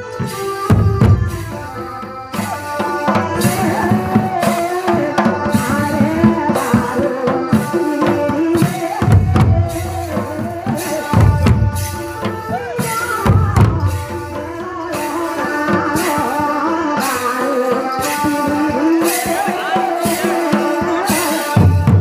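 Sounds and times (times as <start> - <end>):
hand drums beating: 0.0 - 22.0
heavy low drum strokes: 0.0 - 22.0.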